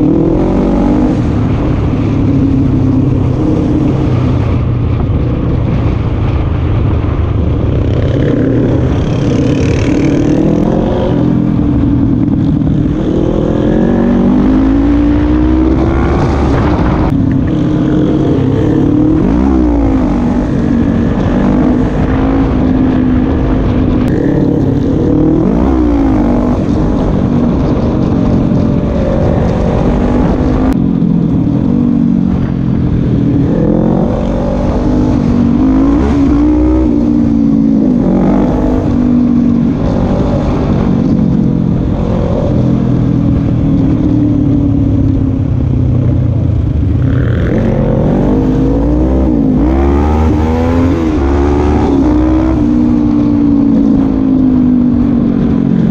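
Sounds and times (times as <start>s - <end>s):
quad bike engine revving: 8.0s - 30.7s.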